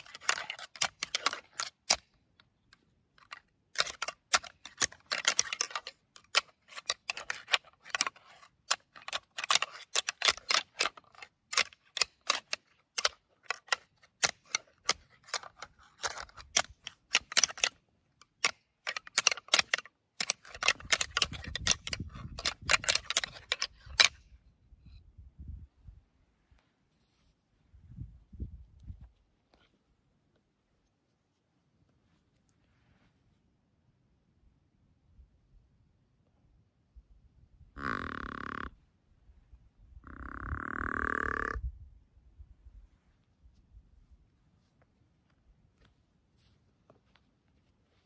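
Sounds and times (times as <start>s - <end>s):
sharp clicks and crackles: 0.0s - 24.2s.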